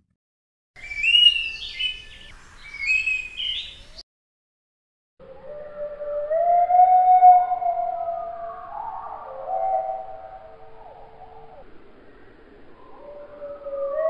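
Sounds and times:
thrush whistled song: 0.8s - 4.0s, 5.3s - 14.0s
slowed low gliding tones: 5.2s - 14.0s.

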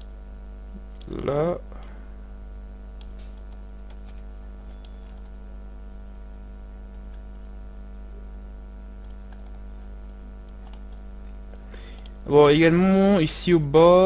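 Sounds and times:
electrical mains hum: 0.0s - 14.0s
faint computer input clicks: 11.9s - 12.2s.

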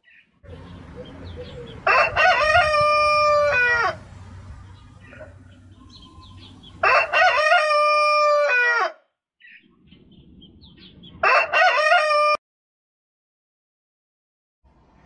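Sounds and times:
rooster crowing alarm sound: 1.8s - 4.0s, 6.8s - 9.0s, 11.2s - 12.4s.

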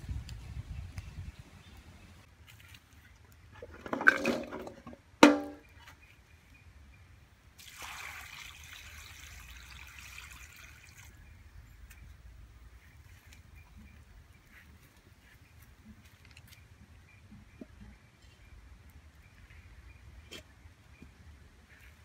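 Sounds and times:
water pouring into wok: 7.6s - 11.1s.

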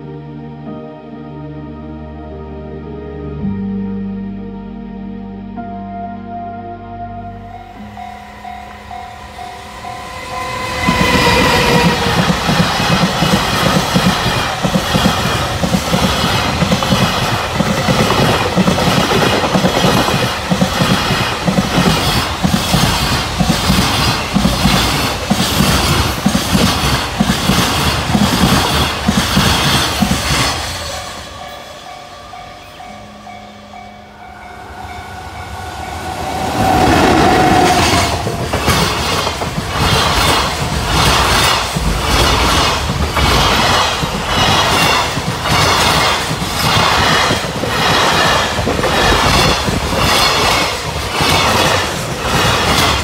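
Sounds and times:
freight train passing at speed: 7.2s - 53.0s
tone dropping in pitch: 32.8s - 38.7s.

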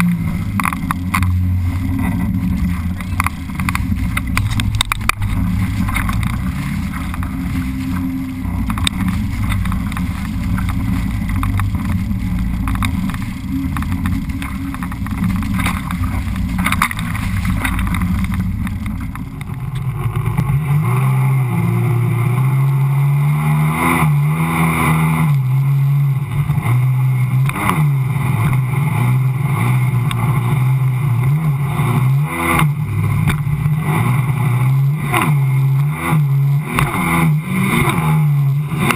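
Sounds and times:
personal watercraft engine: 0.0s - 38.9s
water and wind noise: 0.0s - 38.9s.

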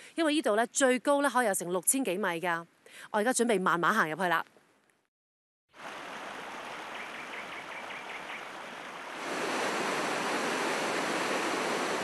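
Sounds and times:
river rushing: 5.8s - 12.0s.

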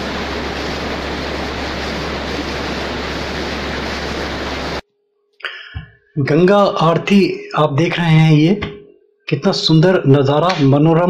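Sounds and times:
roar of rushing river water: 0.0s - 4.8s.

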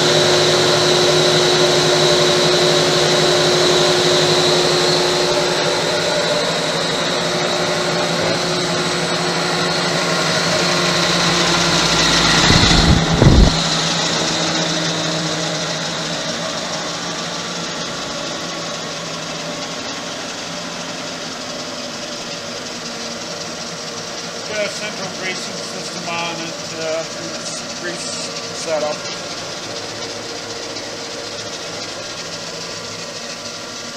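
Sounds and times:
grinder motor humming: 0.0s - 33.9s
brief low rumble: 11.8s - 13.8s.

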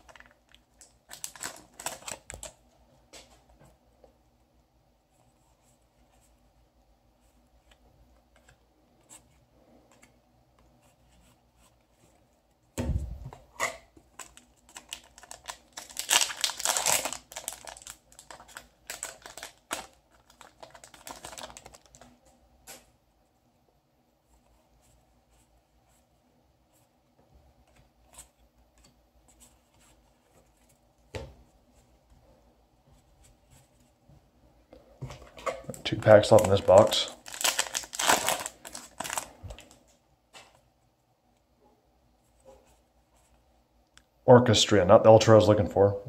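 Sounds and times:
cards rustling: 0.0s - 2.6s, 14.1s - 22.2s, 35.7s - 40.5s.

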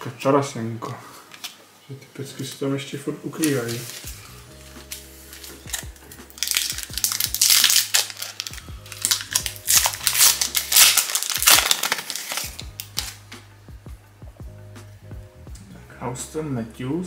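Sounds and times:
foil wrapper tearing and crinkling: 3.4s - 4.2s, 4.8s - 13.2s.

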